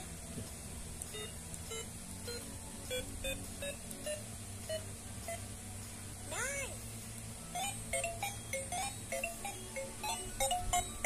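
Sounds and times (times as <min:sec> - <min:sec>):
toy phone electronic beeps: 0:07.6 - 0:11.0.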